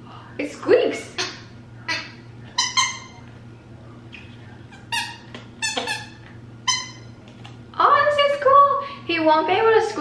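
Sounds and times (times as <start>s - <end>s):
dog toy squeaking: 1.1s - 3.2s, 4.7s - 7.2s.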